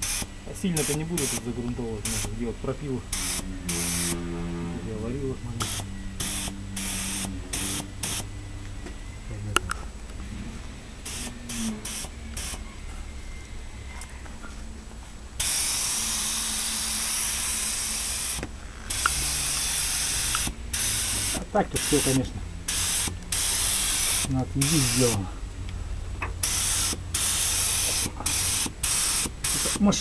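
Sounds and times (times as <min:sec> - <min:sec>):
spray gun hissing: 0:00.0 - 0:04.3, 0:05.6 - 0:08.3, 0:11.0 - 0:12.6, 0:15.4 - 0:25.3, 0:26.4 - 0:30.0.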